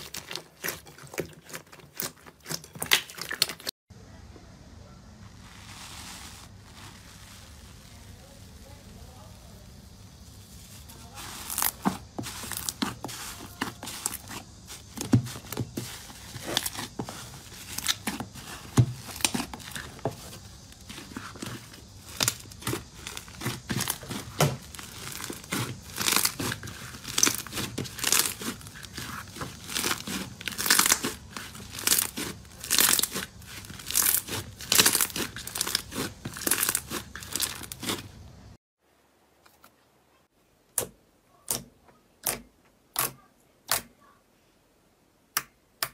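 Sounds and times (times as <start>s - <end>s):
slime squeezed with sticky pops: 21.0s - 38.0s.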